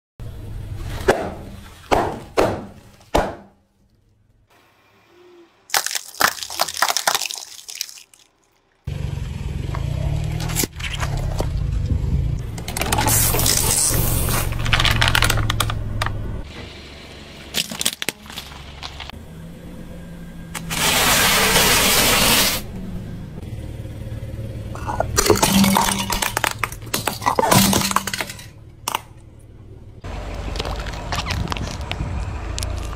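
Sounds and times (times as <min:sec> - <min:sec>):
crackers crunching under tire: 0:05.7 - 0:08.8, 0:10.0 - 0:16.4, 0:17.5 - 0:19.2, 0:24.8 - 0:32.9
low engine hum: 0:08.8 - 0:32.9
plastic bottle crackling under tire: 0:12.5 - 0:16.1, 0:30.5 - 0:32.9.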